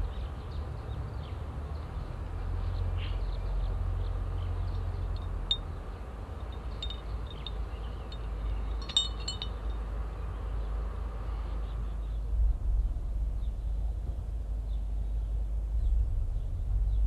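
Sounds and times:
glass bottle clinking: 0:06.5 - 0:09.7
steady low rumble: 0:11.8 - 0:17.0.

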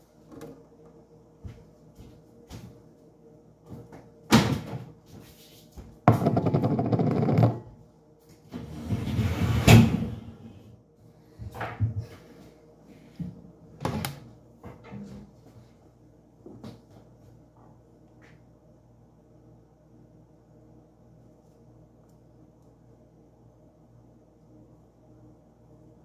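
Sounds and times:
cupboard doors knocking: 0:06.1 - 0:07.6.

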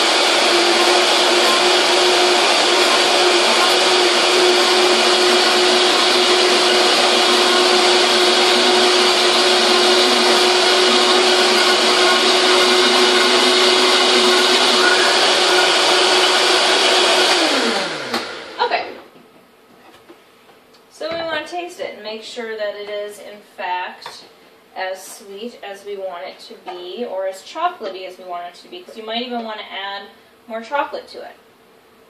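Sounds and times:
blender motor winding down: 0:00.0 - 0:19.0
blender running: 0:00.0 - 0:19.1.

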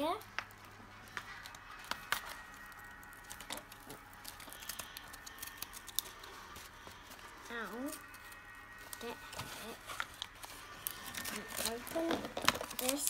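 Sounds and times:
plastic packaging clicks and rustling: 0:00.1 - 0:13.0.

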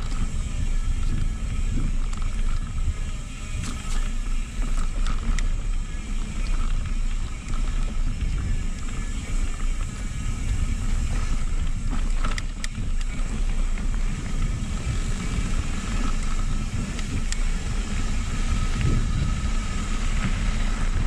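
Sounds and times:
bike tyres rattling over gravel: 0:00.0 - 0:21.0
wind buffeting camera microphone: 0:00.0 - 0:21.0.

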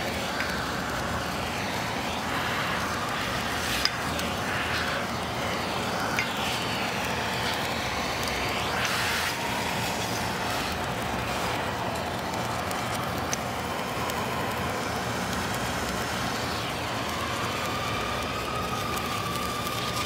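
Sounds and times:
vacuum hose sucking granules: 0:00.0 - 0:13.5.

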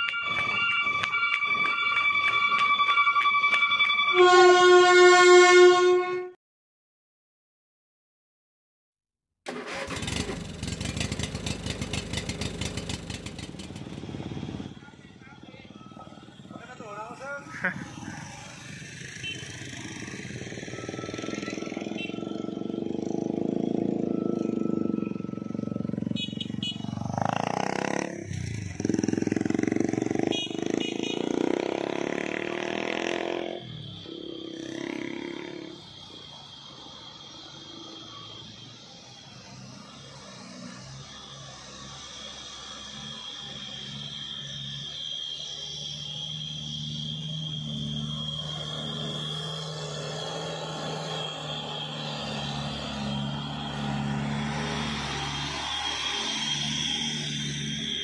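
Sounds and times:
diesel engine clattering: 0:09.5 - 0:14.5
vehicle engine climbing a hill: 0:09.5 - 0:15.0, 0:44.2 - 0:58.0.

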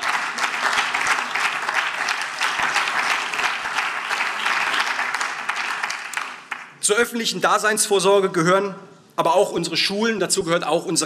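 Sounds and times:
crowd applause: 0:00.0 - 0:06.7.

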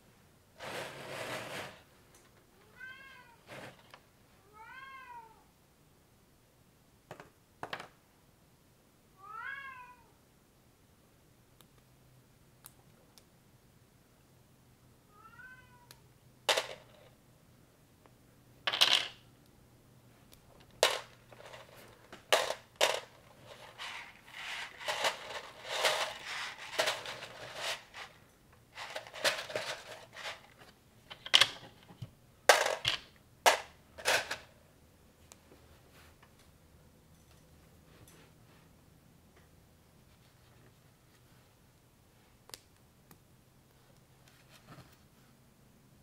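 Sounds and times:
plastic pieces clicking together: 0:20.6 - 0:28.1
plastic pieces rattling: 0:20.7 - 0:28.2, 0:28.8 - 0:31.6, 0:32.5 - 0:34.5.

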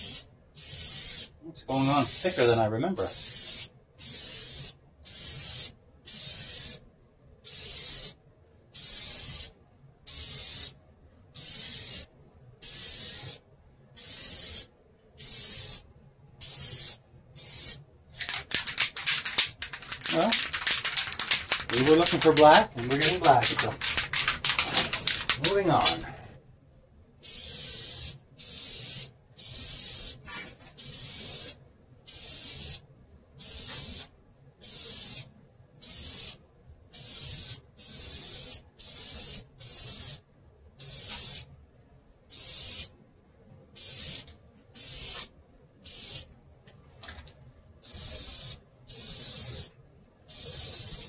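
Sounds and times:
aerosol spray can hissing: 0:00.0 - 0:01.3, 0:01.9 - 0:02.4, 0:03.1 - 0:06.8, 0:07.5 - 0:08.2, 0:08.8 - 0:09.5, 0:10.1 - 0:10.8, 0:11.4 - 0:13.4, 0:14.0 - 0:15.8, 0:16.4 - 0:26.3, 0:27.2 - 0:32.8, 0:33.4 - 0:36.4, 0:37.0 - 0:40.2, 0:40.8 - 0:41.5, 0:42.3 - 0:42.9, 0:43.8 - 0:45.3, 0:45.9 - 0:46.3, 0:47.8 - 0:49.7, 0:50.3 - 0:51.0.

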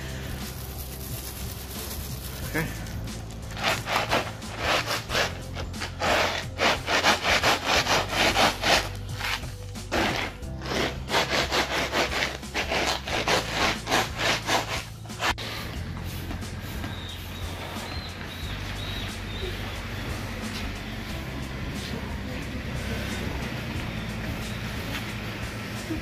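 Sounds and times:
shoes grinding litter on concrete: 0:00.0 - 0:21.2.

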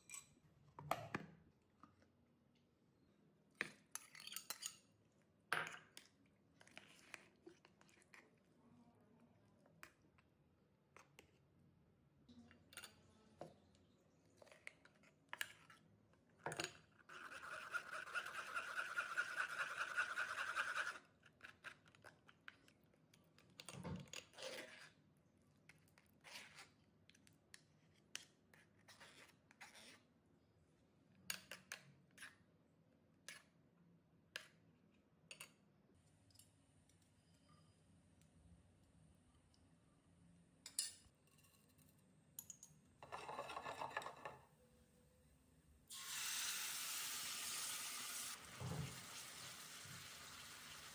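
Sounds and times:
metal spoon scraping in steel jar: 0:17.1 - 0:21.0.

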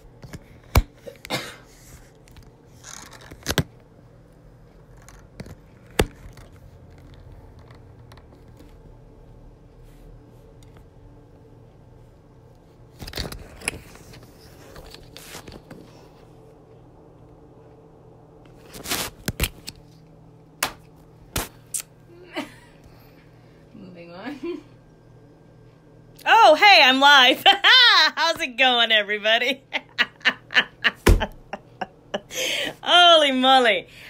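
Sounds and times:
rubbing and scraping on phone: 0:13.3 - 0:16.3.

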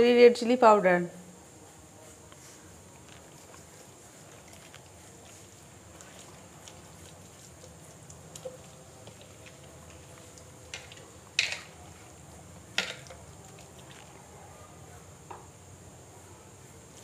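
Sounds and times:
hands rubbing raw chicken: 0:02.1 - 0:11.2.

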